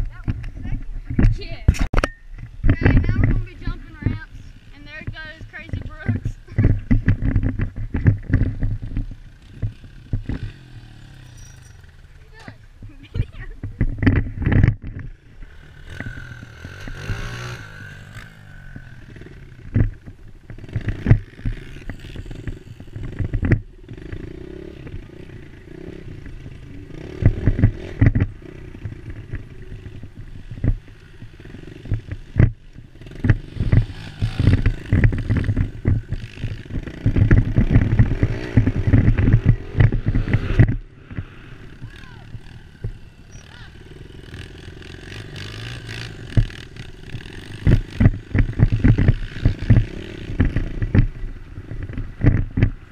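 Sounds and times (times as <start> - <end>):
knocks and rattles from bumps: 0.0 - 15.2
dirt bike engine revving: 2.4 - 52.9.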